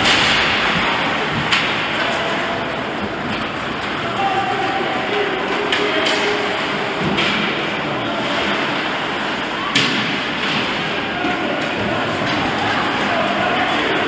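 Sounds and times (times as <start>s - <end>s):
sharp crack: 0.0s - 4.1s, 9.6s - 11.0s
crowd noise: 0.0s - 14.0s.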